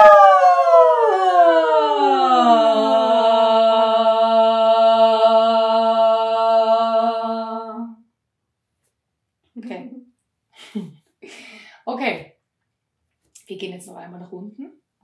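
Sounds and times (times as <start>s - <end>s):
women singing siren vocal exercise: 0.0s - 8.0s.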